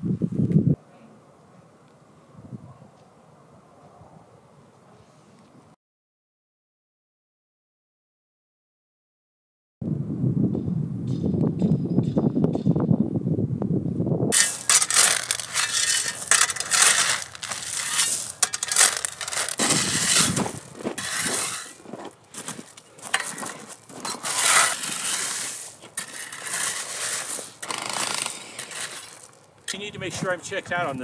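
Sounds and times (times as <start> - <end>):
low wind rumble: 9.8 - 14.4
tool scraping gravel ballast: 14.3 - 30.3.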